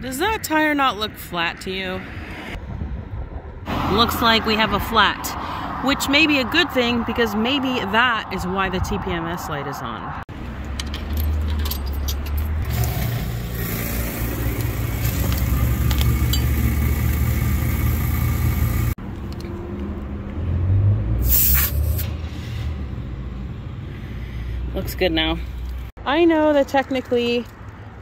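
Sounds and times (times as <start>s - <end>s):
air compressor running: 12.7s - 19.0s
sharp hiss of air at valve: 21.2s - 22.0s.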